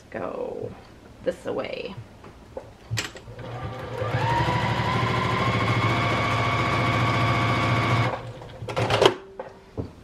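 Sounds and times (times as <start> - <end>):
sewing machine stitching: 3.3 - 9.0.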